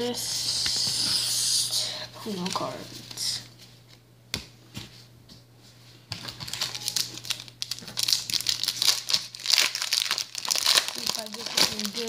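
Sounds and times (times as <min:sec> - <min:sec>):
wrapper crinkling and tearing: 0:06.2 - 0:12.0.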